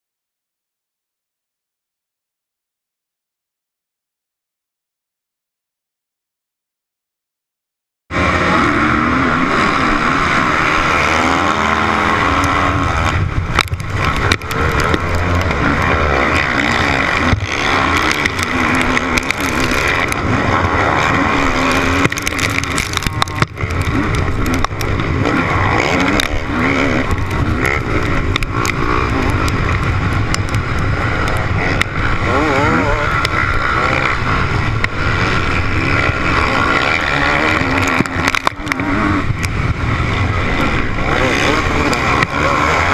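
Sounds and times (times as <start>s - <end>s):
motocross bike engine revving: 8.1s - 42.9s
other motorbike engines: 8.1s - 42.9s.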